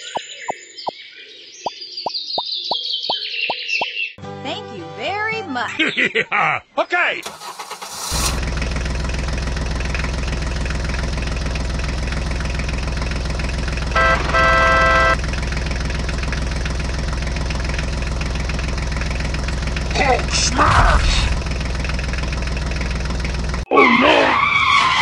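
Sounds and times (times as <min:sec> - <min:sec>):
tractor engine idling: 0:07.2 - 0:23.7
vehicle horn honking: 0:13.8 - 0:15.2.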